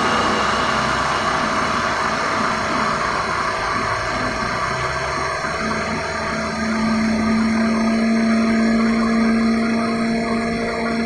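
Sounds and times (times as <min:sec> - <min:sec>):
blender motor running: 0:00.0 - 0:11.0.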